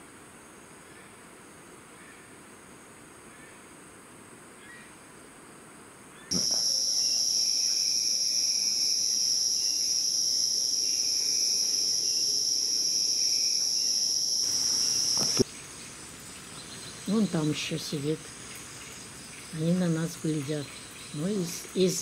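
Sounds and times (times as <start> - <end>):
insects droning buzz: 0.0 - 22.0
faint pulsing call: 6.3 - 15.4.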